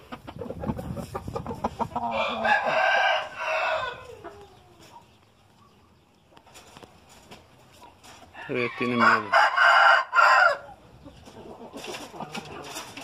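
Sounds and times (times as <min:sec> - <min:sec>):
rooster crowing: 0:02.0 - 0:04.2, 0:08.4 - 0:10.8.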